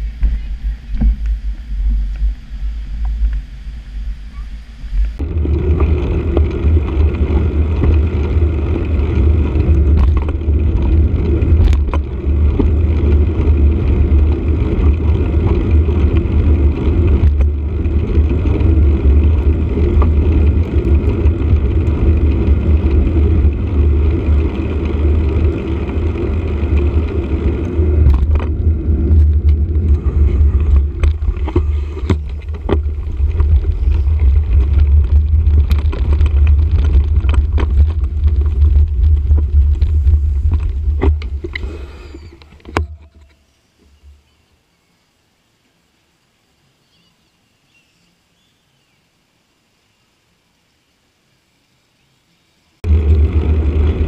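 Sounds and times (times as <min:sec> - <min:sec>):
wind buffeting microphone: 0:00.0 - 0:43.2
road rumble: 0:00.0 - 0:54.0.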